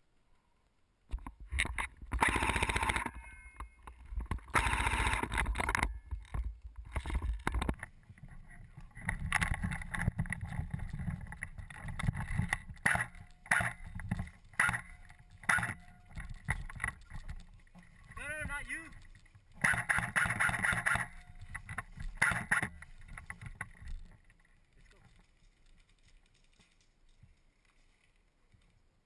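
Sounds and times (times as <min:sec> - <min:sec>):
sharp clicks: 0:09.0 - 0:24.1.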